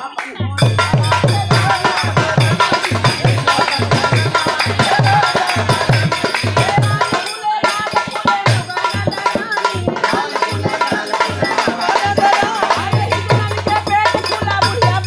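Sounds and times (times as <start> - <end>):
dholak drum beats: 0.0 - 15.0
folk song singing: 0.0 - 15.0
jingling rattling percussion: 0.6 - 15.0.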